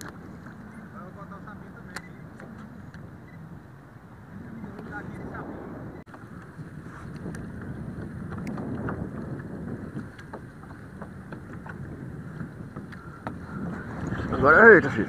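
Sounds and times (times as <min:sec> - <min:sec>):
wind buffeting microphone: 0:00.0 - 0:15.0
faint clicks: 0:01.9 - 0:03.4
waves lapping against kayak hull: 0:06.0 - 0:15.0.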